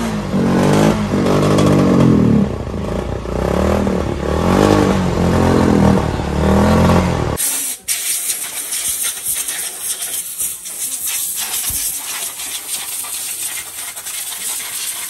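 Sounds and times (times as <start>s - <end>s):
motorcycle engine revving: 0.0s - 7.4s, 11.0s - 15.0s.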